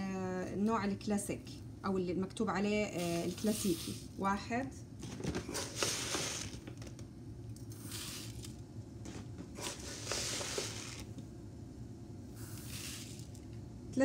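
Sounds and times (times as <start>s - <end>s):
rice grains rustling into colander: 3.0s - 4.2s, 7.8s - 8.5s, 9.6s - 11.1s, 12.4s - 13.4s.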